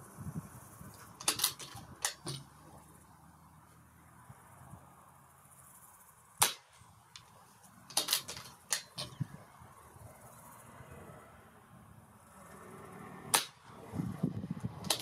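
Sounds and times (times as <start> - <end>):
small clicks and knocks: 1.0 - 2.5, 7.1 - 9.2
air rifle shot: 6.4 - 6.8, 13.3 - 13.6.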